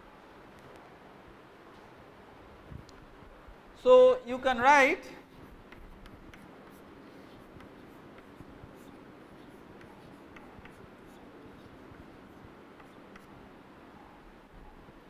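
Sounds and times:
low room hum: 0.0 - 15.0
chalk scratching on chalkboard: 5.2 - 13.6
chalk tapping on board: 5.3 - 13.6.

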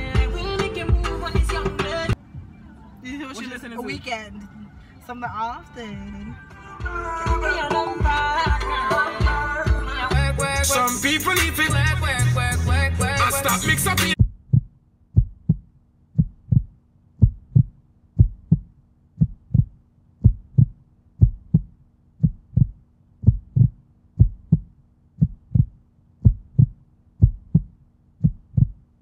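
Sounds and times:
heartbeat thumps: 0.1 - 2.6, 14.2 - 29.0.

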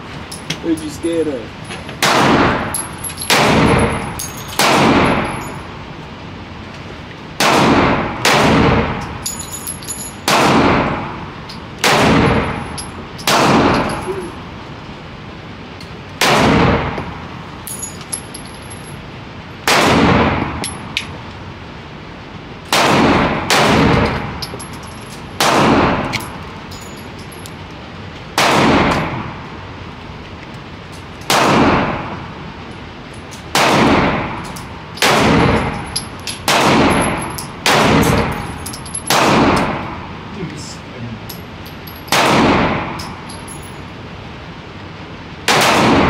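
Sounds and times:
gunshots with echo: 7.4 - 9.0, 36.5 - 38.3.

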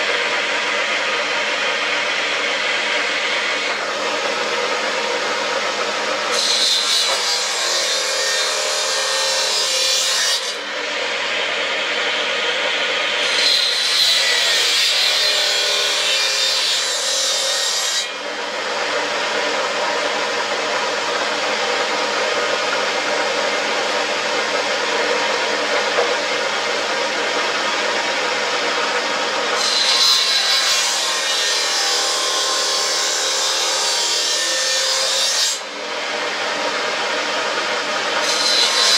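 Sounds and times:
circular saw cutting wood: 0.0 - 38.9.

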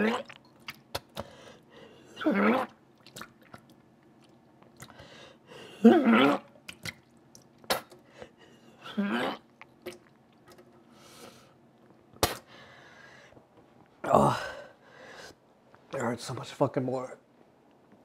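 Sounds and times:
wet mouth clicks and smacks: 0.3 - 1.3, 6.6 - 8.0.

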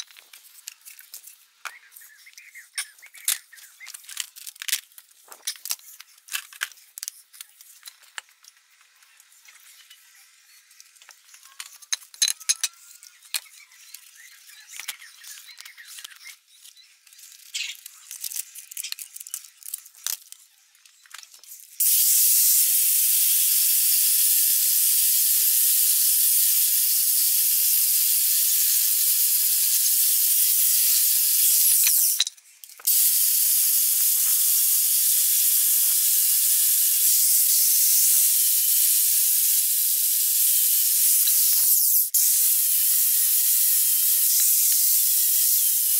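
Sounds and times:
blowtorch flame hissing: 21.8 - 32.2, 32.9 - 45.9.

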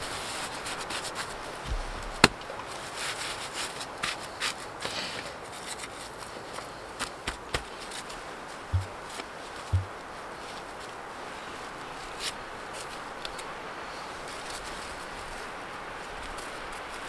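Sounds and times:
small knocks of handwork: 8.8 - 9.0, 9.7 - 10.0.

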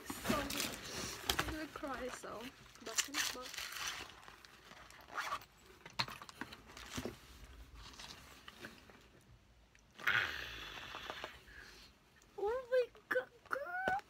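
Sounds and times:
zipper being pulled shut: 5.0 - 5.5
breathy exclamation: 10.0 - 11.7.

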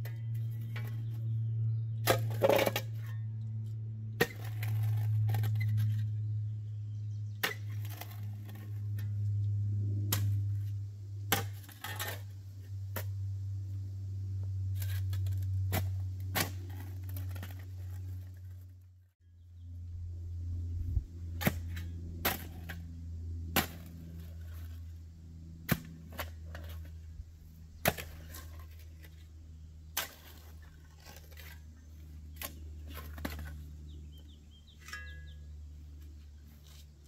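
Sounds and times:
steady low hum: 0.0 - 37.0
shovel digging gravelly soil: 2.0 - 6.2, 7.4 - 9.2, 10.0 - 13.3, 14.5 - 18.7, 21.3 - 25.0, 25.6 - 37.0.

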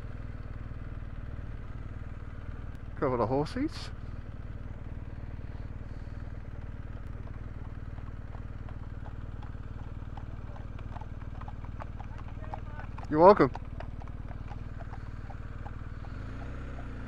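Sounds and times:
motorcycle engine running: 0.0 - 17.0
faint horse hoof clops: 4.8 - 17.0.

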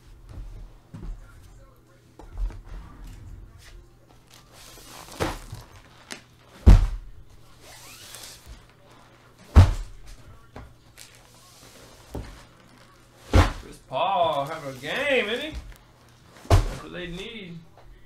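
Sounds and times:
rustling and sliding: 2.6 - 6.6, 7.5 - 9.3, 10.9 - 13.6
objects thudding on a table: 16.4 - 16.8.

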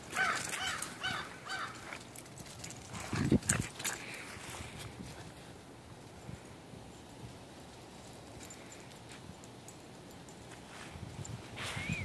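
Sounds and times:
rustles in dry leaves: 0.0 - 9.4.

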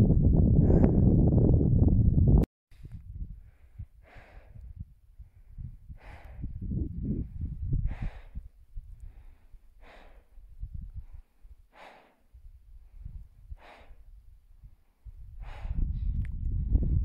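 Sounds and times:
low microphone rumble: 0.0 - 11.2, 14.6 - 17.0
heavy laboured breathing: 0.6 - 1.2, 3.3 - 16.2.

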